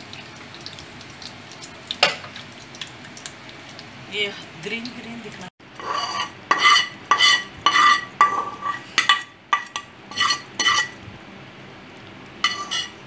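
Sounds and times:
spoon scraping a pan: 5.8s - 11.0s, 12.4s - 13.0s.

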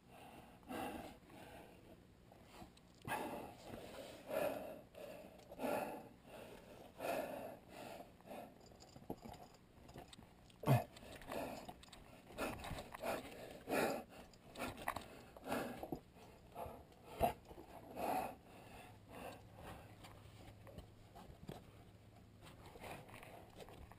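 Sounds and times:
person breathing heavily: 0.0s - 2.0s, 3.0s - 8.9s, 10.6s - 20.0s.

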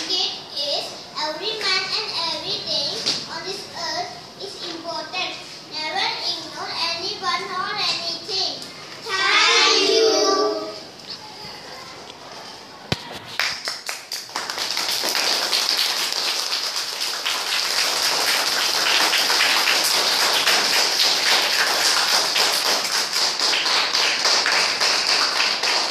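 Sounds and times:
children clapping: 13.4s - 25.9s.

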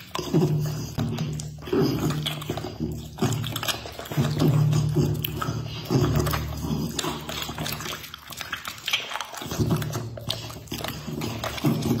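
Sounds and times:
dog chewing raw meat: 0.0s - 12.0s.

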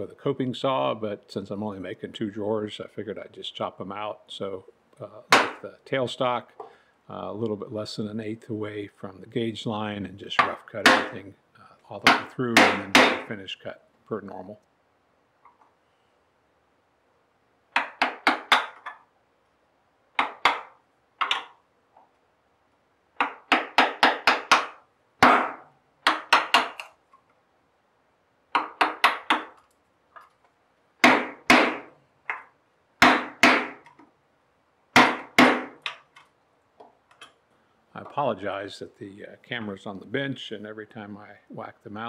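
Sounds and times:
mallet striking chisel: 10.4s - 11.2s, 12.0s - 13.3s, 20.2s - 21.5s, 23.2s - 26.9s, 28.5s - 29.6s, 31.0s - 32.4s, 33.0s - 33.8s, 35.0s - 36.0s.

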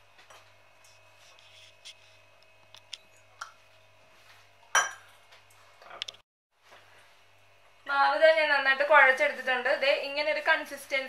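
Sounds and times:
clink against steel bowl: 4.7s - 5.1s.

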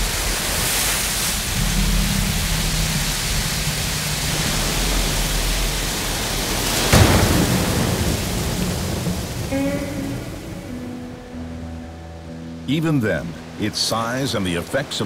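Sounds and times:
thunder crack and rumble: 0.0s - 11.5s
rain pouring: 0.0s - 15.0s.

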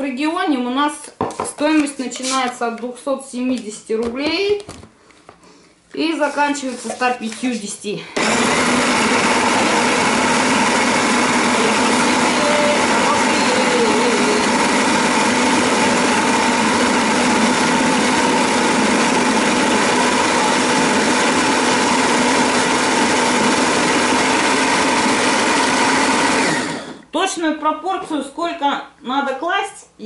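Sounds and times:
blade grinding fruit: 8.2s - 27.0s
food processor motor whining: 8.2s - 27.1s.

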